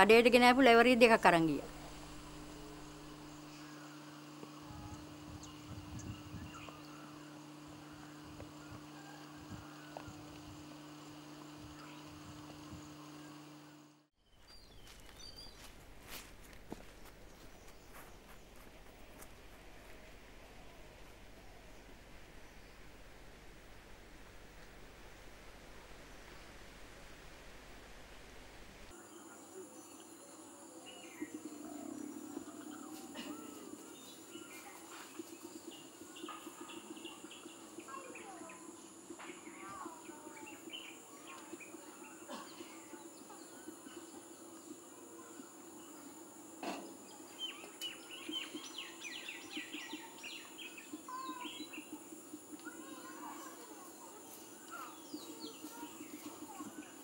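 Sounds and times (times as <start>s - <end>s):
low pulsing buzz: 0.0s - 14.1s, 16.8s - 57.0s
birds chirping: 0.0s - 15.8s, 28.9s - 57.0s
steady low hum: 0.0s - 57.0s
insects: 28.9s - 57.0s.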